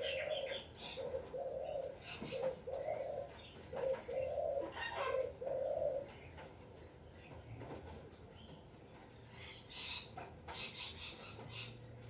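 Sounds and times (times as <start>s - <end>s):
pigeon cooing: 0.0s - 6.3s
birds chirping: 0.0s - 6.4s.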